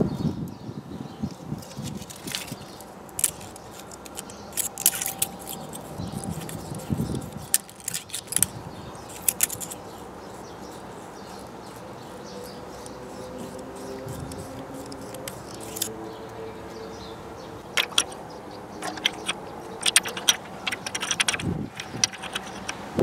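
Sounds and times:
tool scraping on metal: 1.7 - 16.0, 17.8 - 23.0
metallic clicks of hand tool: 3.2 - 9.8, 14.2 - 15.9, 17.8 - 18.2, 18.8 - 22.9.

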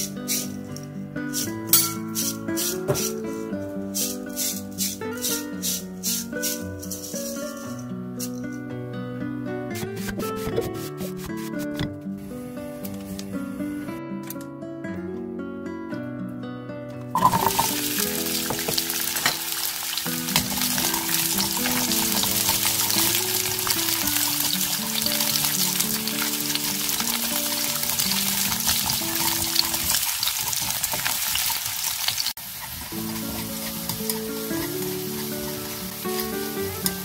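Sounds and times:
background music: 0.0 - 29.6, 33.0 - 37.0
garlic sizzling in hot oil: 1.3 - 3.4, 4.0 - 7.7, 17.2 - 37.0
chopsticks stirring in pan: 1.3 - 8.4, 17.2 - 37.0.

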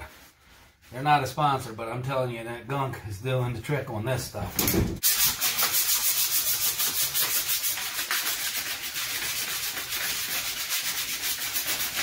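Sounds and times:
hand scrubbing greasy metal: 5.0 - 12.0.

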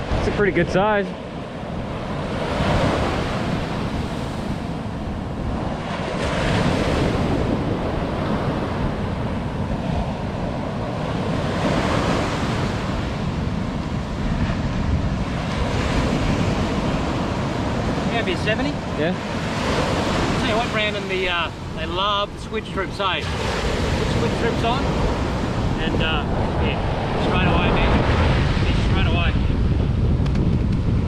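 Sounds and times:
ocean surf breaking: 0.0 - 31.0
wind buffeting microphone: 0.0 - 31.0.

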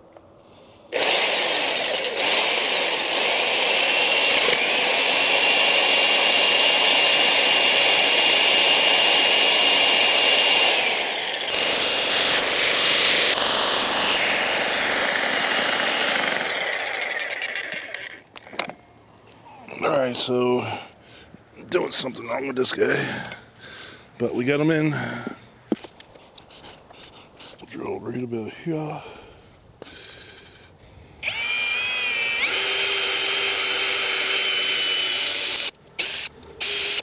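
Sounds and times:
electric jackhammer running: 0.9 - 18.8, 31.2 - 37.0.

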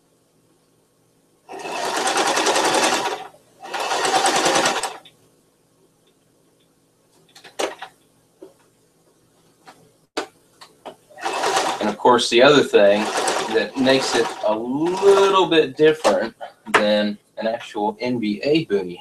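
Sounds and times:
sewing machine stitching: 1.5 - 5.0, 11.2 - 16.3.

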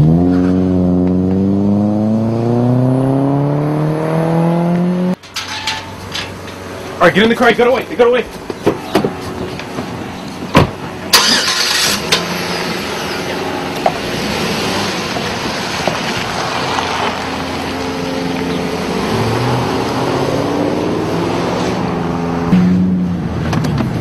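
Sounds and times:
car engine starting and accelerating: 0.0 - 5.2, 11.0 - 24.0.

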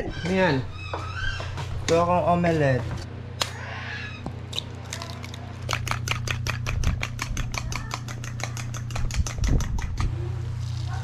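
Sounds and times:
utensil clicking against bowl: 4.5 - 10.1.

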